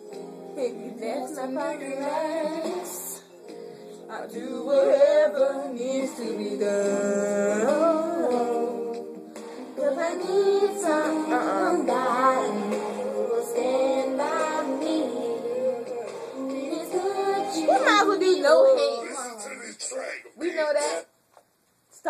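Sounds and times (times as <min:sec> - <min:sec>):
women singing slow r and b song: 0:00.6 - 0:03.3, 0:04.1 - 0:19.0.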